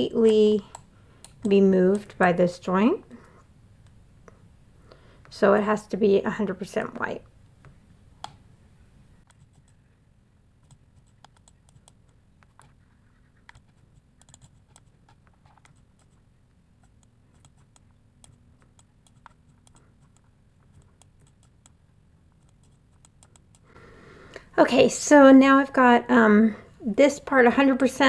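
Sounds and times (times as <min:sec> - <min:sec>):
mouse and keyboard clicks: 0:10.6 - 0:12.8, 0:13.4 - 0:16.2, 0:16.8 - 0:21.8, 0:22.4 - 0:23.6.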